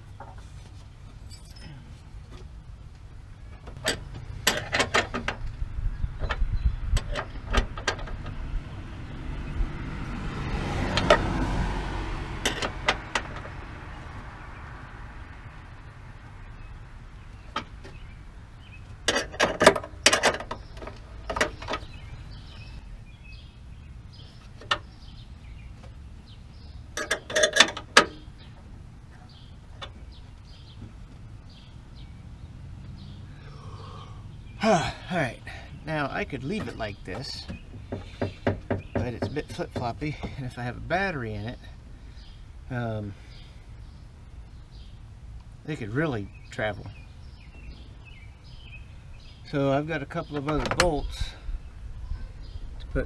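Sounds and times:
passing vehicle: 5.4s - 19.1s, 21.0s - 45.2s.

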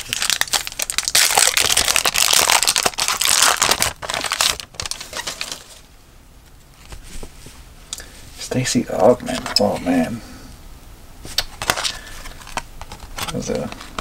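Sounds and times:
wrapper crinkling: 0.0s - 5.9s.

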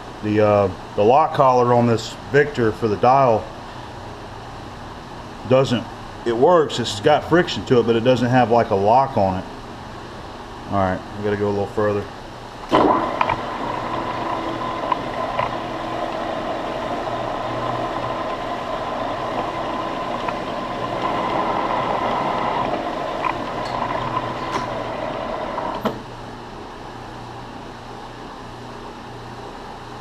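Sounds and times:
low steady hum: 0.0s - 30.0s
lathe whining: 12.7s - 26.1s.

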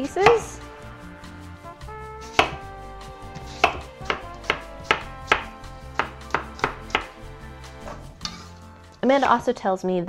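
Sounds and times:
knife chopping apple on board: 0.2s - 0.5s, 2.3s - 2.6s, 3.4s - 7.2s.

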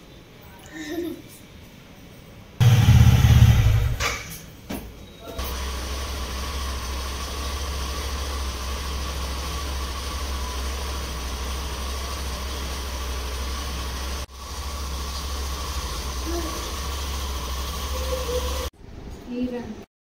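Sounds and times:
motorcycle engine idling: 2.6s - 4.3s, 5.4s - 18.7s.

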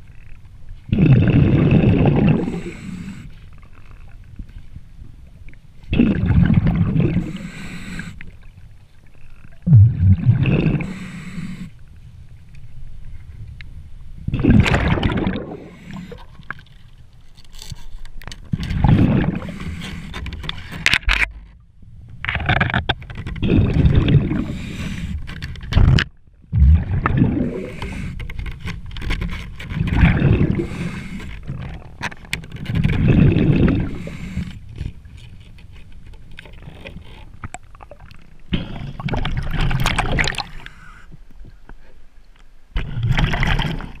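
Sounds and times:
underwater water noise: 0.0s - 44.0s
exhaled bubbles gurgling underwater: 0.9s - 4.3s, 5.2s - 11.7s, 14.2s - 16.6s, 18.5s - 20.1s, 21.9s - 28.2s, 29.8s - 32.1s, 32.7s - 34.8s, 37.4s - 40.9s, 42.8s - 44.0s.

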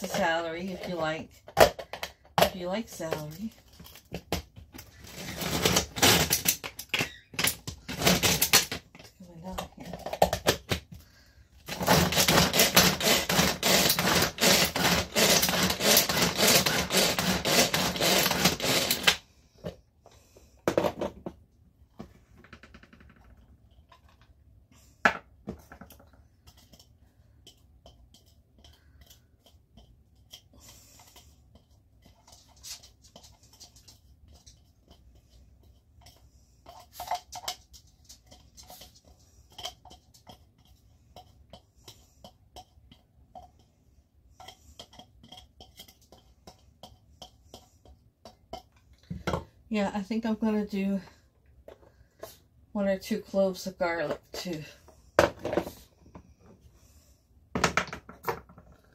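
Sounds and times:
food chopper rattling: 5.1s - 6.9s, 7.5s - 8.8s, 11.7s - 19.2s.

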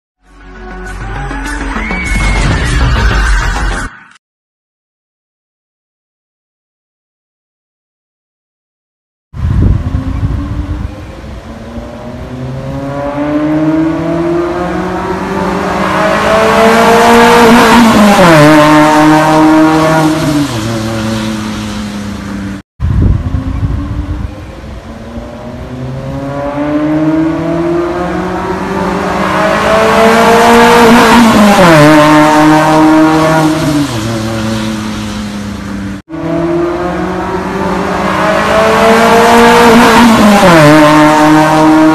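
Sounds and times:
car accelerating past: 11.6s - 22.6s, 25.1s - 41.9s.

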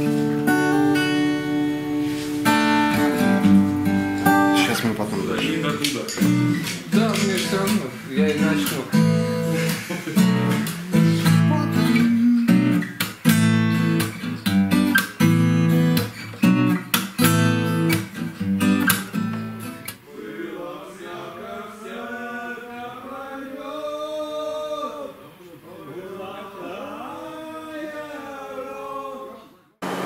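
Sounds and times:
strummed acoustic guitar: 0.0s - 20.1s
person singing: 9.5s - 12.9s.

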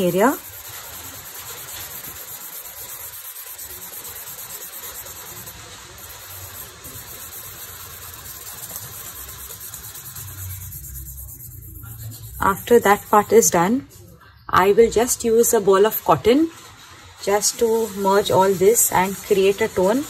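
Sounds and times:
charcoal scratching on paper: 0.0s - 13.6s.

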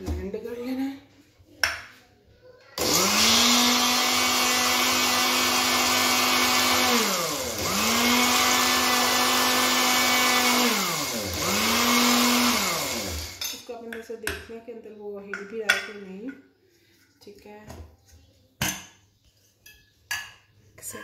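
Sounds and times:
mixer grinder motor humming: 2.8s - 13.4s.

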